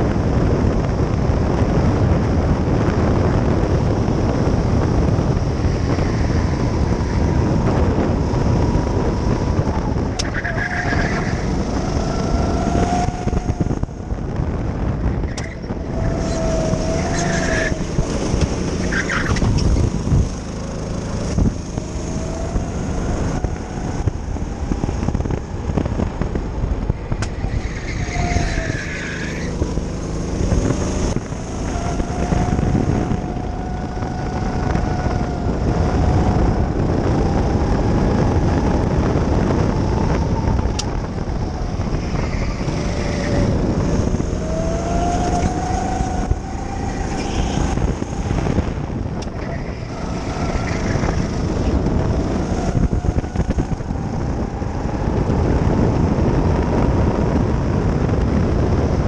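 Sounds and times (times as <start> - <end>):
go-kart engine running hard: 0.0 - 59.0.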